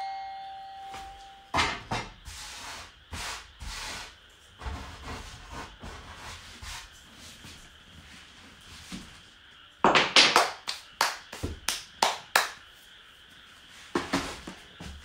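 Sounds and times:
hand slaps or claps: 9.9 - 12.6.

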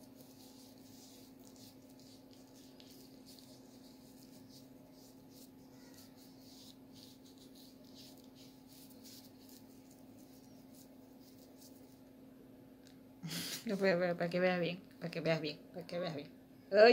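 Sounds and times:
pad rubbing on skin: 0.0 - 12.0
steady low hum: 0.0 - 16.9.

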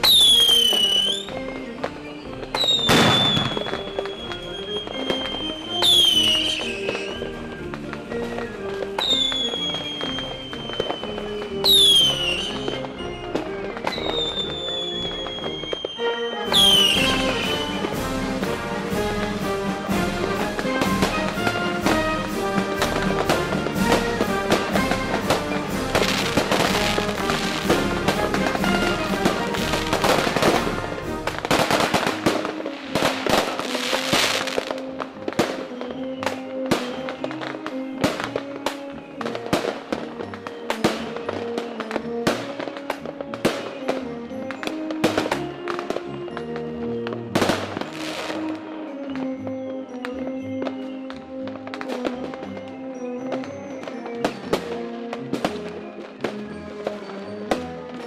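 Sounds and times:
firework whistle: 0.0 - 58.0
fireworks cracking and popping: 0.0 - 58.0
music soundtrack: 0.0 - 58.0
firework shell bursts: 2.4 - 7.2.

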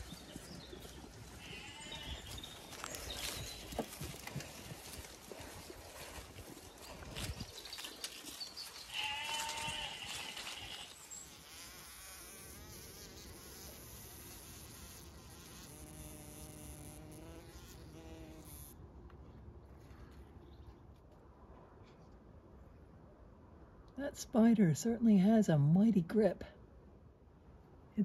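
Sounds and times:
sheep bleating: 1.4 - 2.4, 8.9 - 10.9
insect buzzing in web: 8.9 - 18.7.

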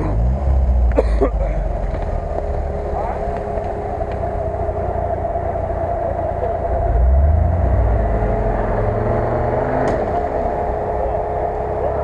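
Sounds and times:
off-road vehicle engine revving: 0.0 - 12.0.

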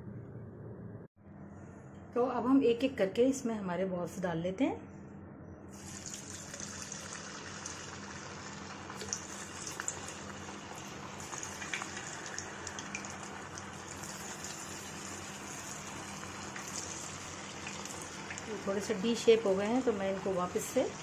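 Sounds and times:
oil sizzling while deep-frying: 5.8 - 21.0.

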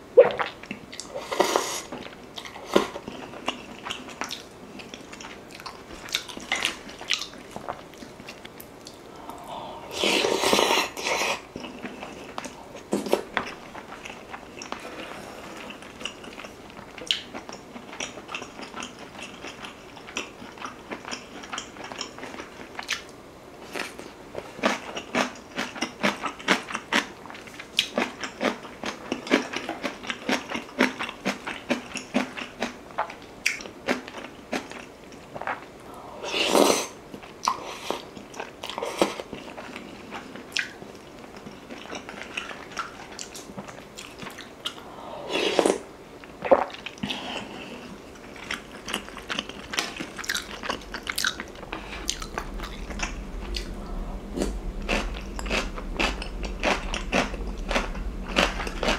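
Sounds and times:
wet chewing and crunching: 2.0 - 9.0, 48.1 - 58.9.

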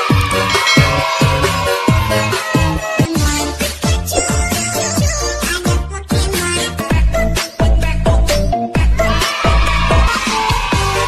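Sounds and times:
electronic dance music: 0.0 - 3.5.

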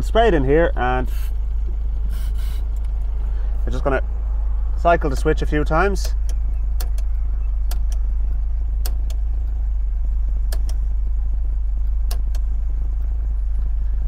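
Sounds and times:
car engine idling: 0.0 - 14.0
indicator switch clicks: 6.0 - 8.0, 8.8 - 9.2, 10.5 - 10.8, 12.0 - 12.5.

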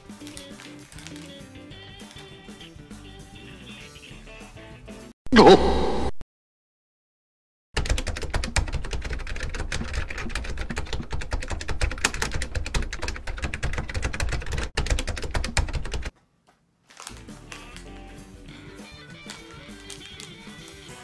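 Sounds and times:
soft background music: 0.0 - 4.3, 17.0 - 21.0.

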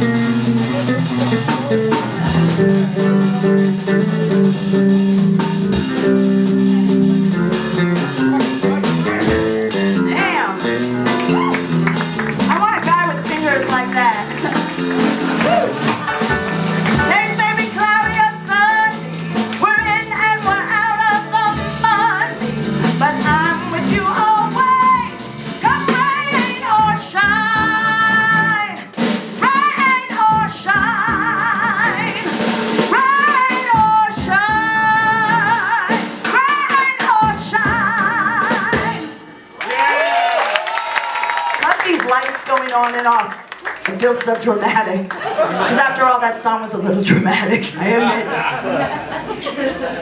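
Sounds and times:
drums: 0.0 - 50.0
live band playing: 0.0 - 50.0
woman singing with vibrato: 17.0 - 28.8, 29.4 - 39.1.

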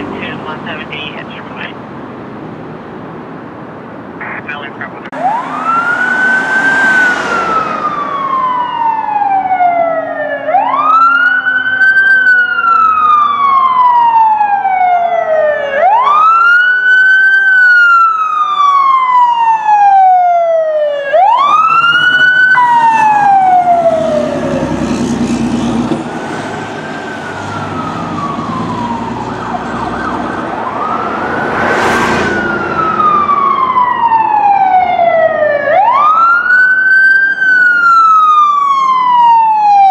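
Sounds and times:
emergency vehicle siren wailing: 0.0 - 1.8, 4.2 - 39.9.

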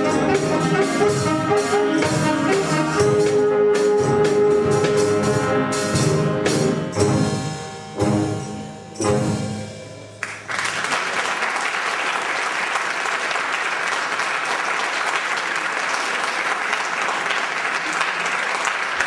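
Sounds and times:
audience applause: 10.2 - 19.0.

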